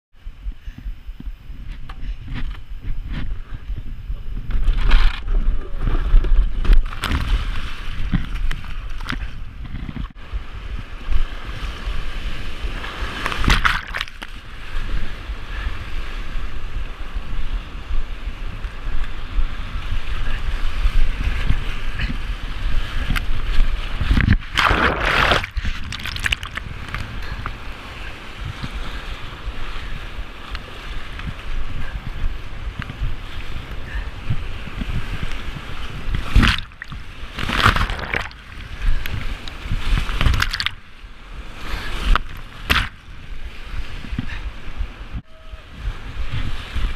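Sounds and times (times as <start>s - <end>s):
waves splashing over boat: 4.5s - 46.9s
paddle strokes: 20.0s - 45.0s.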